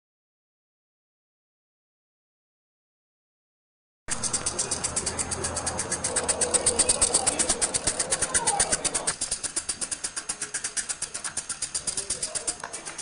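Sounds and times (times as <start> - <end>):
rapid mechanical ticking: 4.1 - 13.0.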